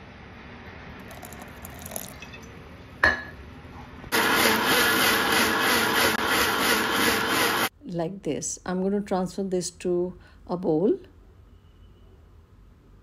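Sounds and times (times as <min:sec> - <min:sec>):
mixer grinder running: 0:04.1 - 0:07.7.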